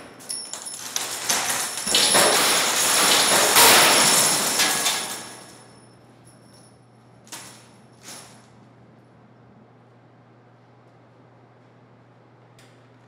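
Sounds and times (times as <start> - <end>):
steel nails clinking: 0.0 - 5.7
scrap iron clanging onto metal heap: 0.2 - 5.7.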